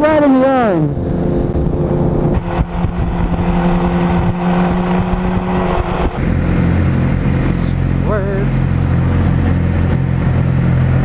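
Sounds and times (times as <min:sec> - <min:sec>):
wind rushing over microphone: 0:00.0 - 0:08.4
motorcycle engine running: 0:00.0 - 0:11.0.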